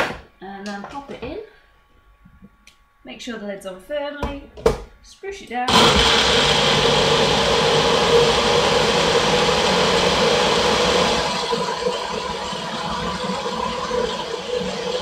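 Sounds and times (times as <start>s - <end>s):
blender running: 5.7s - 15.0s.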